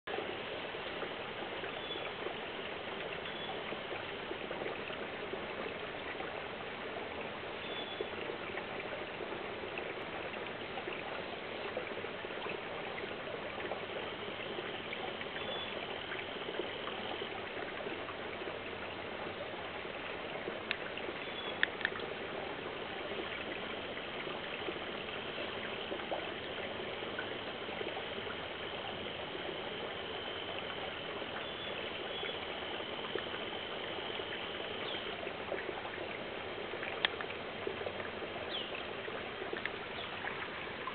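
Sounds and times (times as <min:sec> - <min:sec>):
stream water trickling: 0:00.1 - 0:40.9
faint clicks: 0:20.6 - 0:20.9, 0:21.5 - 0:22.1, 0:36.8 - 0:37.4.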